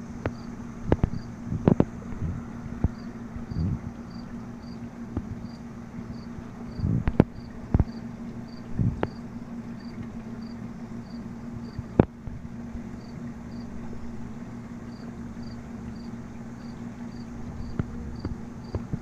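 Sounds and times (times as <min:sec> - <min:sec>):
steady low hum: 0:00.0 - 0:19.0
cricket chirping: 0:03.0 - 0:04.8, 0:14.9 - 0:18.8.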